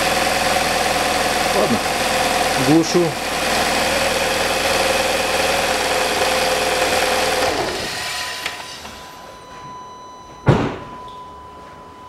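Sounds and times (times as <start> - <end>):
car engine idling: 0.0 - 9.1
heavy thump: 9.6 - 11.1.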